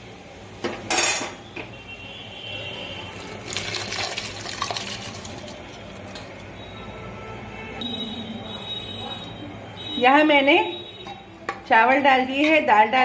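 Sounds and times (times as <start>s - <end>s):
rice pouring into boiling water: 3.0s - 6.5s.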